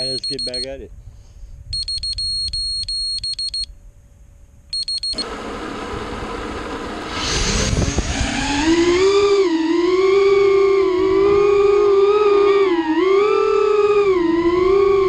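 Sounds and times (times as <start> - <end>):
short high electronic beeps: 0.0 - 0.6, 1.8 - 3.7, 4.7 - 5.2
electric motor whirring whine: 5.2 - 15.0.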